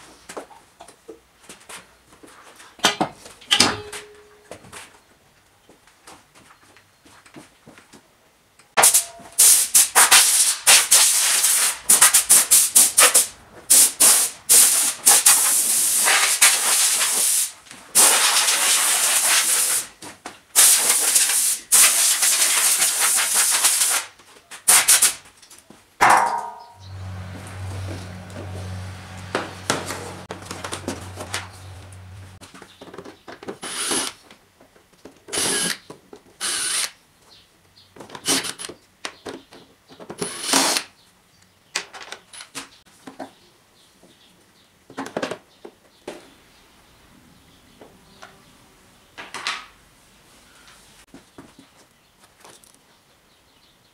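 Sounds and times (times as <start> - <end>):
air blow gun hissing: 8.8 - 19.9
cordless drill whirring: 33.6 - 34.1, 35.4 - 35.8, 36.4 - 36.9, 40.2 - 40.8.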